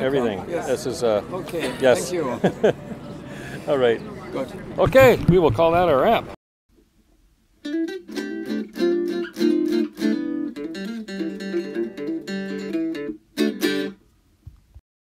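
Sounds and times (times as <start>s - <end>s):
guitar chord strums: 7.6s - 14.0s.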